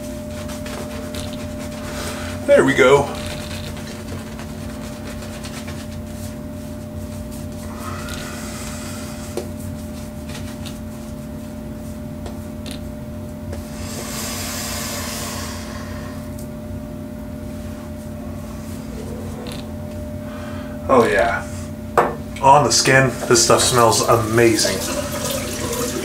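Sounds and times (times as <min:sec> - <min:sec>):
shaving brush swishing lather: 0:00.0 - 0:07.8
steady hum: 0:00.0 - 0:26.0.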